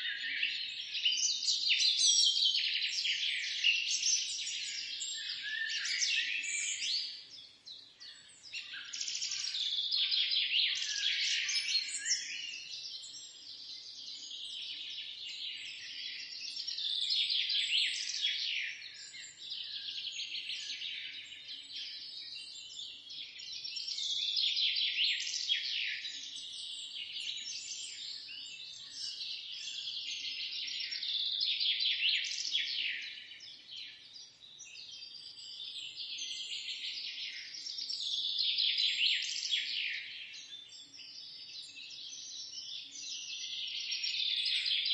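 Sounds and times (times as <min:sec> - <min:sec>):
songbirds chirping: 0:00.0 - 0:44.9.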